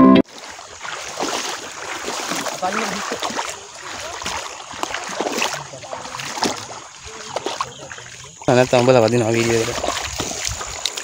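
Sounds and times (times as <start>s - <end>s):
footsteps splashing through water: 0.2s - 11.0s
wet grass brushing: 0.3s - 11.0s.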